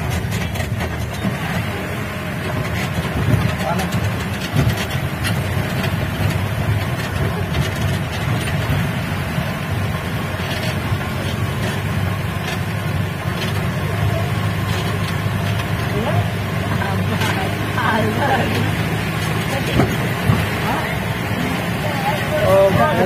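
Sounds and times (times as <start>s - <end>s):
car engine running: 0.0s - 23.0s
faint body knocks and rattles: 2.5s - 23.0s.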